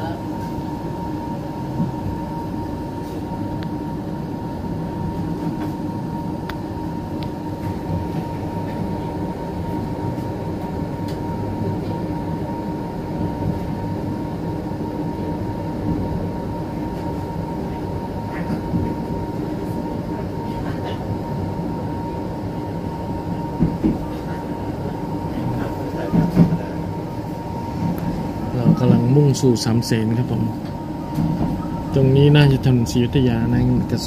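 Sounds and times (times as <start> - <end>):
constant high hum: 0.0 - 34.0
train carriage rumble on rails: 0.0 - 34.0.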